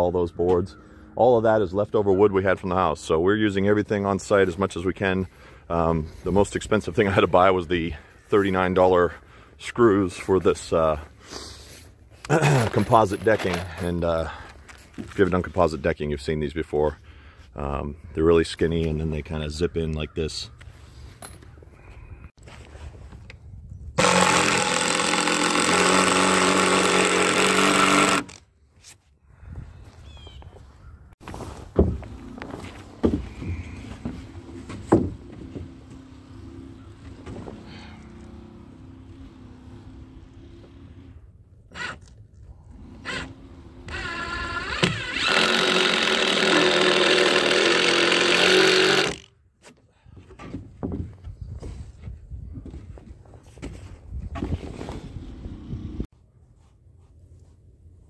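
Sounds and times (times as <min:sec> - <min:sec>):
impact driver driving screw: 0:24.0 - 0:28.4, 0:43.0 - 0:49.3
footsteps on wooden deck: 0:31.2 - 0:36.1, 0:49.6 - 0:55.0.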